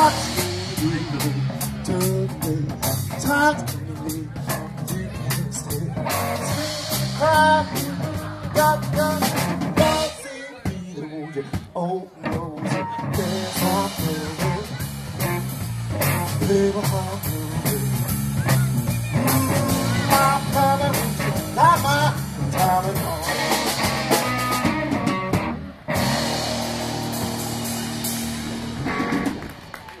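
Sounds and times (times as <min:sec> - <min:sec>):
drum kit: 0:00.0 - 0:10.9, 0:11.5 - 0:30.0
man singing: 0:00.0 - 0:24.2
electric guitar through amplifier: 0:12.6 - 0:30.0.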